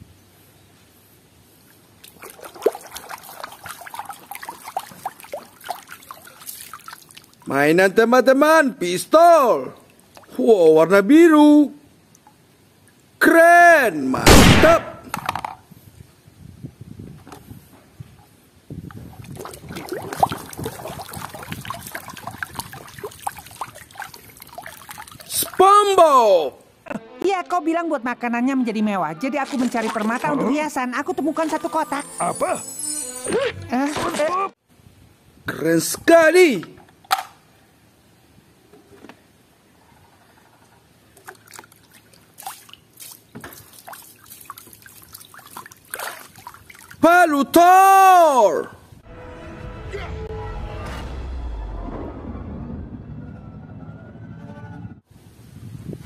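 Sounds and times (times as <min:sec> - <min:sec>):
water sloshing and splashing: 0:01.9 - 0:07.5, 0:18.9 - 0:25.7, 0:29.3 - 0:31.8, 0:40.2 - 0:47.0.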